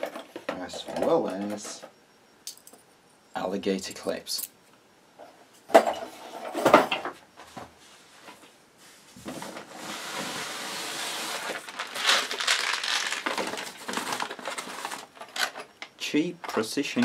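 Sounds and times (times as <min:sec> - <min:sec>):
packing paper rustling: 0:09.4 - 0:15.6.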